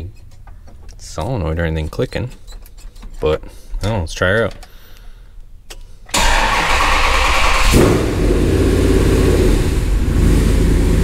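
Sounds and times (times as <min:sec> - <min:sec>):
truck engine starting: 0:06.1 - 0:11.0.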